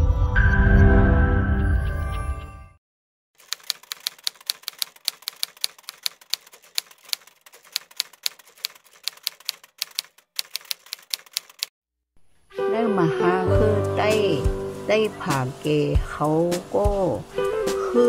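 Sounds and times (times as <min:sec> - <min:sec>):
typewriter keys clacking: 0:03.4 - 0:11.7.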